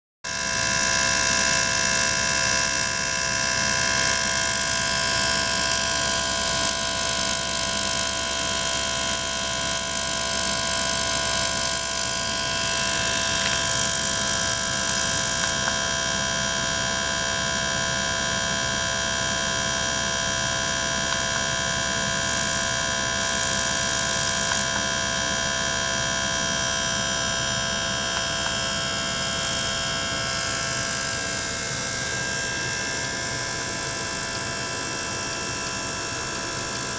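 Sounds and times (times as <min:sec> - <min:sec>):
pump humming: 0:00.3 - 0:36.9
high whining tones: 0:02.5 - 0:15.7, 0:20.9 - 0:24.8, 0:28.1 - 0:35.3.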